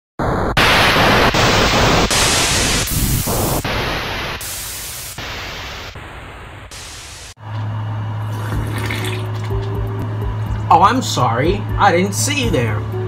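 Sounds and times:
static hiss changing tone: 0:00.2 - 0:07.4.

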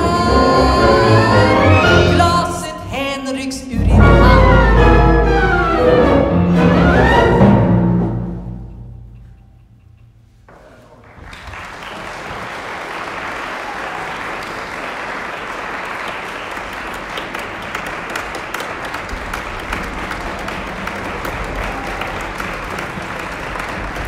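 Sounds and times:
orchestra final chord: 0:03.8 - 0:09.4
audience applauding: 0:10.5 - 0:24.0.

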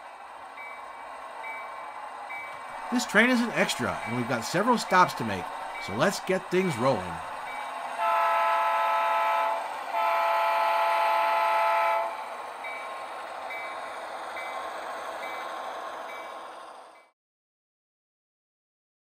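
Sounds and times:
diesel engine sound: 0:00.0 - 0:17.1
model train horn blasts: 0:08.0 - 0:12.2.

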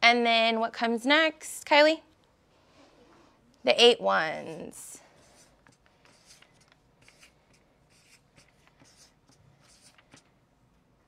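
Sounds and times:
marker scratching on paper: 0:04.4 - 0:10.3.

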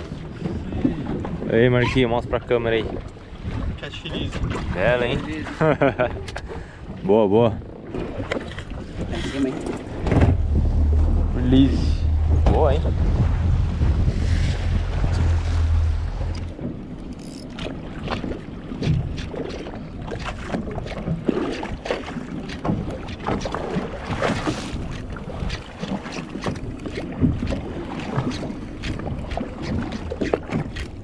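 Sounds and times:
wind on microphone: 0:00.0 - 0:05.4, 0:08.7 - 0:16.8
water lapping against boat hull: 0:00.0 - 0:31.0
low hum: 0:09.7 - 0:17.6.

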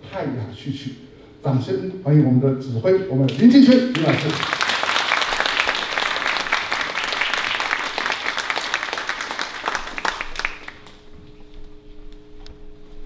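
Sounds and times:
audience applauding: 0:03.3 - 0:11.1.

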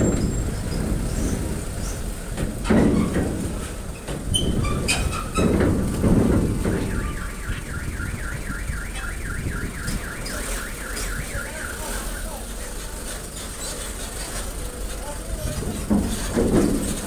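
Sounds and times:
electronic alarm warbling: 0:06.8 - 0:12.4.

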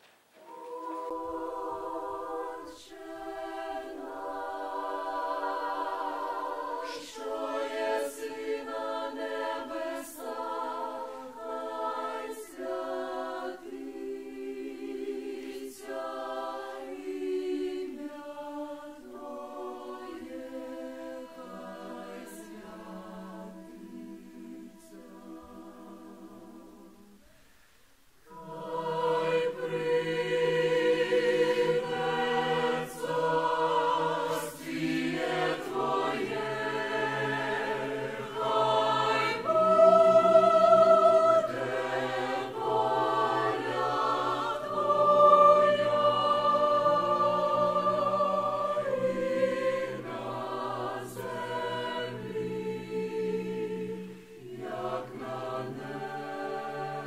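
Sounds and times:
mixed choir singing a cappella: 0:00.3 - 0:27.4, 0:28.2 - 0:57.0.

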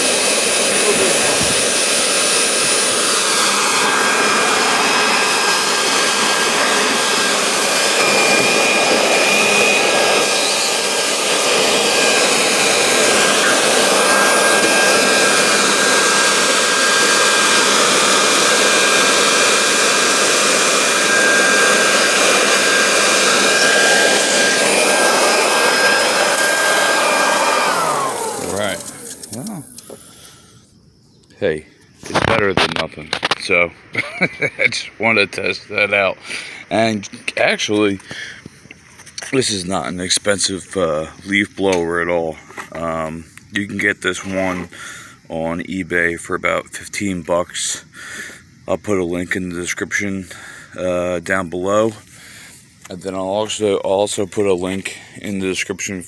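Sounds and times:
leaf blower running: 0:00.0 - 0:30.6, 0:34.0 - 0:34.9, 0:35.9 - 0:38.4.

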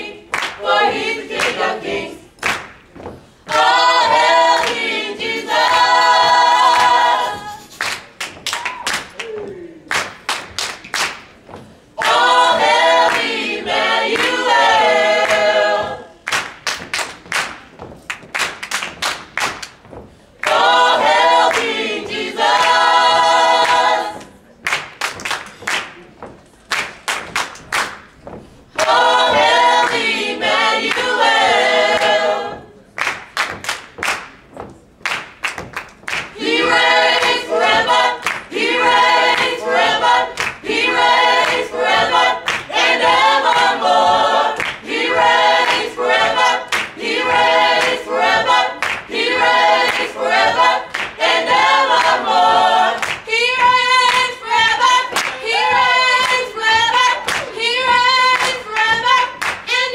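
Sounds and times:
group singing in harmony: 0:00.0 - 0:02.4, 0:03.3 - 0:08.1, 0:11.8 - 0:16.5, 0:20.3 - 0:24.5, 0:28.6 - 0:32.8, 0:36.2 - 0:59.9
handclaps: 0:00.3 - 0:02.9, 0:03.5 - 0:11.4, 0:12.0 - 0:30.2, 0:30.8 - 0:32.2, 0:32.9 - 0:52.4, 0:53.0 - 0:59.9.

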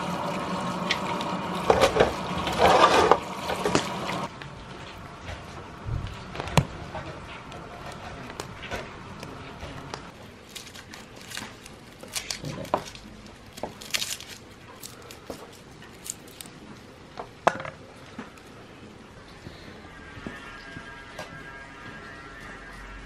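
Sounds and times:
wood fire crackling in stove: 0:00.0 - 0:22.5
papery skins falling: 0:10.2 - 0:16.8.

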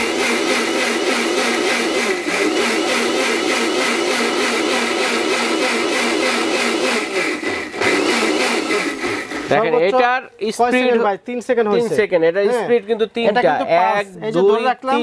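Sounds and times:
mixer grinder churning: 0:00.0 - 0:09.9.

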